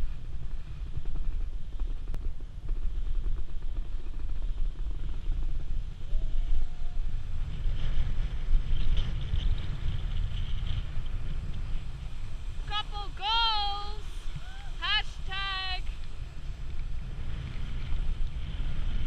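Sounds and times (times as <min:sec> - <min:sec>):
wind buffeting microphone: 0:00.0 - 0:19.0
snowboard edges scraping snow: 0:07.2 - 0:19.0.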